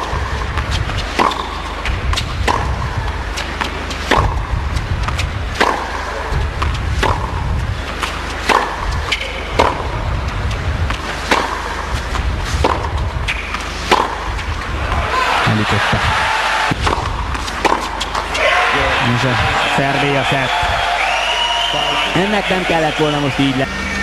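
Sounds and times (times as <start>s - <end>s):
tennis ball hit by racket: 0.0s - 10.0s, 10.8s - 15.1s, 16.6s - 18.4s
low background hum: 0.0s - 24.0s.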